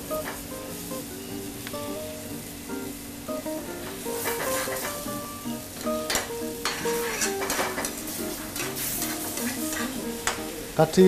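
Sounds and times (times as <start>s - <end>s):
sauce sizzling in a pan: 0.0s - 11.0s
soft background music: 0.0s - 11.0s
spatula scraping a metal pan: 4.2s - 5.0s, 6.6s - 10.0s.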